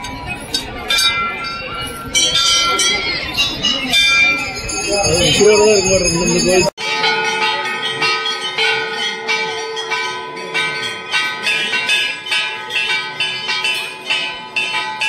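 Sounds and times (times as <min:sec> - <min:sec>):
temple bells struck rapidly: 0:00.0 - 0:15.0.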